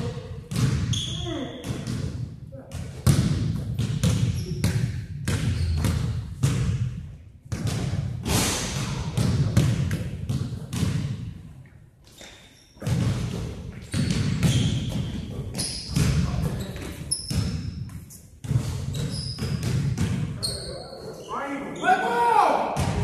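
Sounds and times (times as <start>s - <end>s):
basketball bouncing in gym: 0.0s - 11.6s, 12.2s - 20.8s, 22.8s - 23.0s
shoe squeaks: 0.9s - 1.6s, 5.5s - 5.9s, 13.9s - 18.2s, 18.8s - 19.7s, 20.4s - 22.0s.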